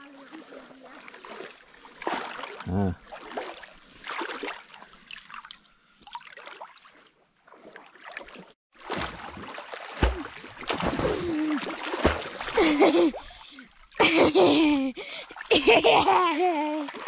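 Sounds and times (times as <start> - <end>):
water splashing and lapping: 0.0 - 17.0
child swimming strokes splashing: 7.5 - 17.0.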